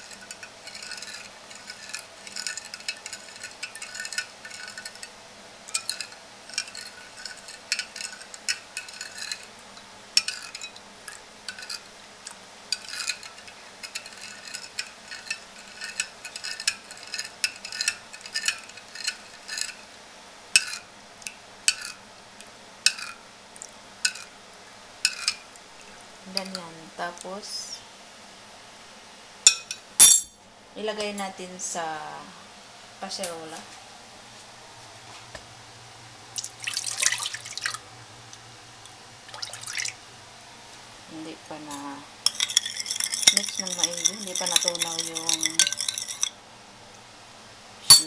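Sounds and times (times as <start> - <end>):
spoon stirring in ceramic bowl: 0.0 - 9.5, 10.2 - 19.8, 20.6 - 20.9, 21.7 - 22.0, 22.9 - 23.2, 24.1 - 24.3, 25.1 - 25.5, 41.7 - 46.4.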